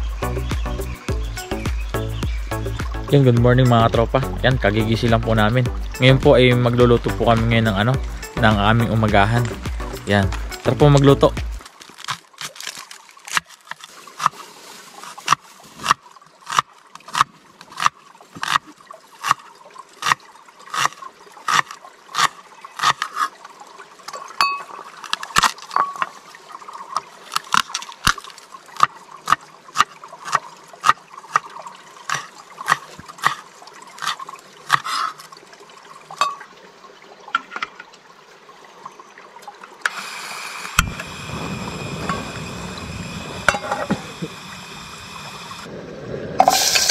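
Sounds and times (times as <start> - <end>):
faint watery hiss: 13.9 - 15.9, 39.8 - 46.9
dense steady noise: 40.3 - 46.9.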